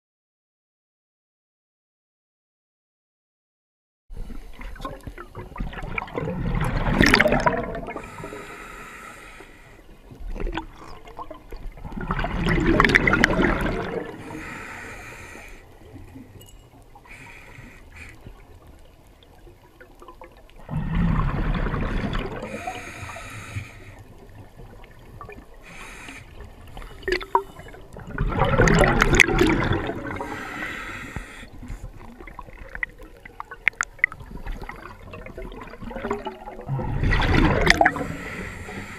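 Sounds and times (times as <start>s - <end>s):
diver breathing bubbles: 6.0s - 10.0s, 11.9s - 16.0s, 17.0s - 18.5s, 20.6s - 33.0s, 34.5s - 38.9s
faint hiss: 25.6s - 27.8s.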